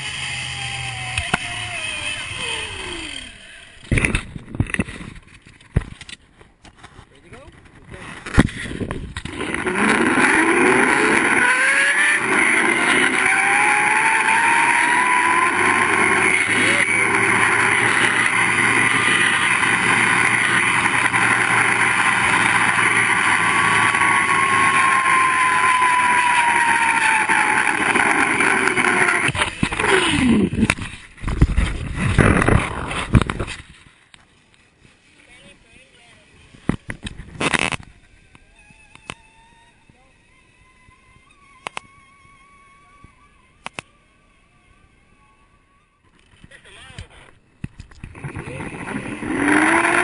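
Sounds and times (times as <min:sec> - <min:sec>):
pulleys rolling on steel cable: 0:00.0 - 0:04.9, 0:09.2 - 0:31.1, 0:48.1 - 0:50.0
steady rushing noise: 0:07.3 - 0:38.1.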